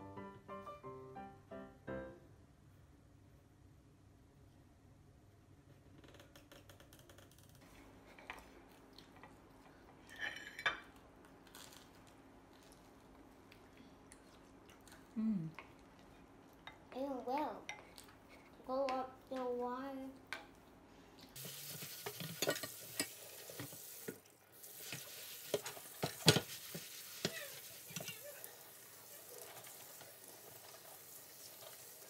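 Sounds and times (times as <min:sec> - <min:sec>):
dishes and cutlery clinking: 0:10.0 - 0:11.0, 0:21.8 - 0:23.7, 0:24.8 - 0:28.4.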